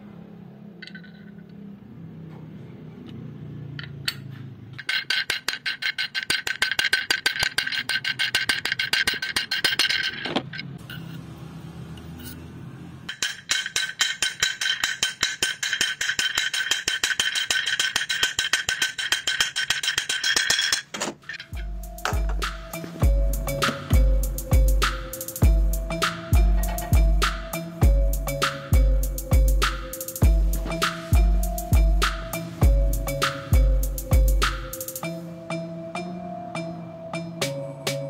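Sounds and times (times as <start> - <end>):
spinning bearing metallic buzz: 3.6 - 35.3.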